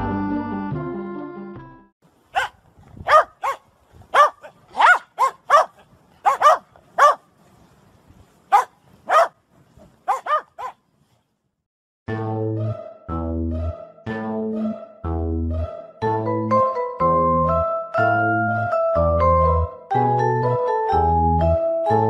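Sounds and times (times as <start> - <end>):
dog barking: 2.3 - 7.3, 8.5 - 9.4, 10.1 - 10.8.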